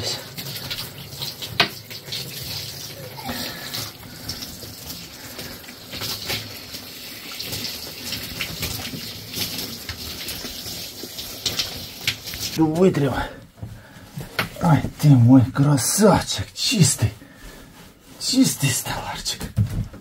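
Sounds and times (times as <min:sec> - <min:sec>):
tap water running and splashing: 0:00.0 - 0:15.0.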